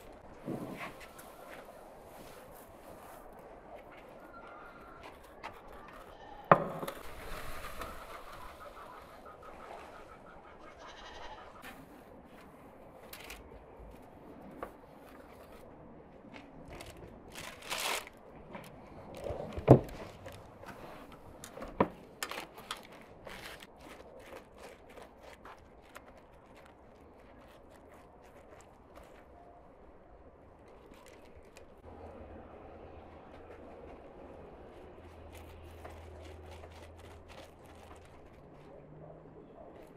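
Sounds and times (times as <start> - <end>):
livestock bleating: 10.8 - 11.5.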